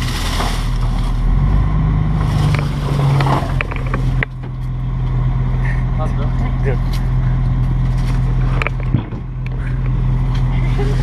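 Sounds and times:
knocks and clatter of trash: 0.0s - 1.4s, 2.1s - 4.7s, 7.9s - 10.5s
garbage truck engine running: 0.0s - 11.0s.

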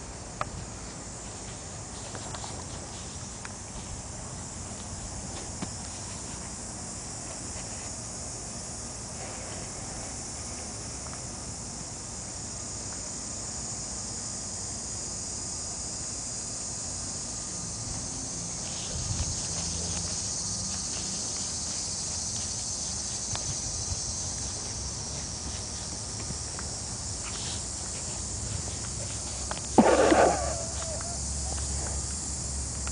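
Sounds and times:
insects chirring: 0.0s - 32.9s.

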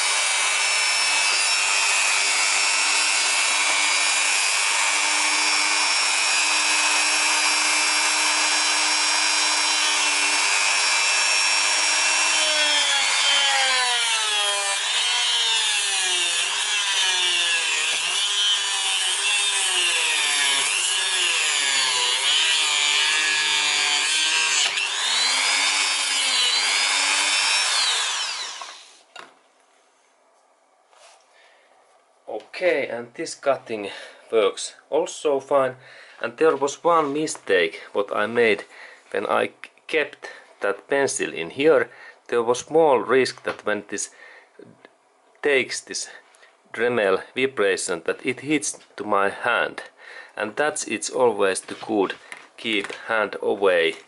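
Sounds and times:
cut-off wheel cutting wood: 0.0s - 29.0s
rotary tool whining: 0.0s - 29.0s.

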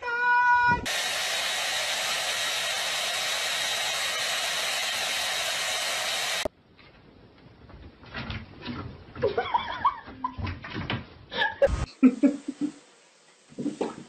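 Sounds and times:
hair dryer blowing: 0.8s - 6.5s.

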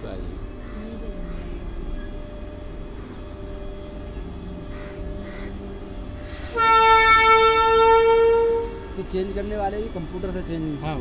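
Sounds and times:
locomotive rumble: 0.0s - 11.0s
locomotive horn: 6.3s - 9.0s.

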